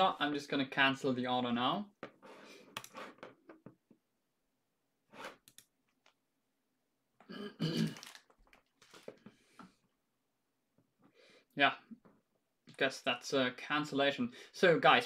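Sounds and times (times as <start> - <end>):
man clearing his throat: 7.2 - 8.2.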